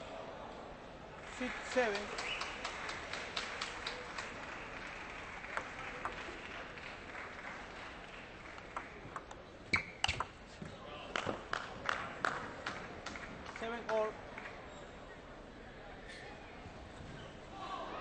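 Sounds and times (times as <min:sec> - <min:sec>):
crowd applauding: 0:01.2 - 0:09.3, 0:11.1 - 0:14.6.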